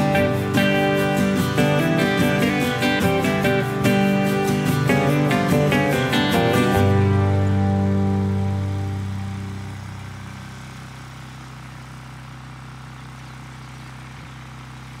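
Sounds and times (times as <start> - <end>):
music chord: 0.0 - 10.4
lawn mower engine running: 0.0 - 15.0.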